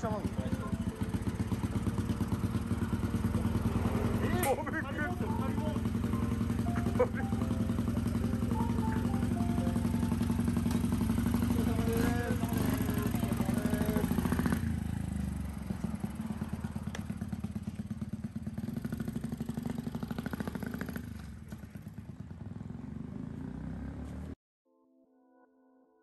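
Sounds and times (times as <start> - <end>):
voices: 0.0 - 1.2, 3.1 - 9.8, 11.4 - 14.6
motorcycle engine riding off: 0.0 - 24.4.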